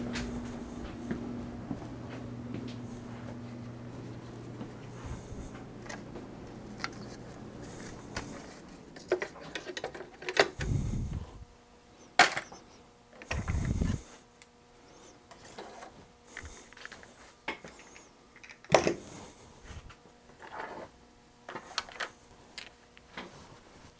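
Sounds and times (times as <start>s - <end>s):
low steady hum: 0.0s - 23.9s
clicks and knocks of handled parts: 9.0s - 10.7s, 21.5s - 23.3s.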